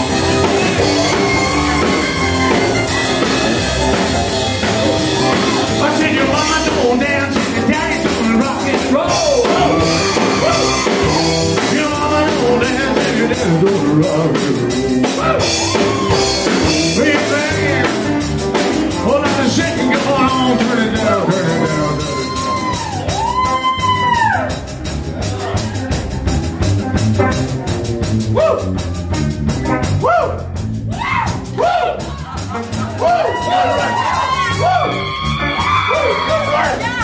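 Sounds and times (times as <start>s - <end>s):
live rock and roll band: 0.0s - 37.0s
man singing: 5.3s - 22.8s.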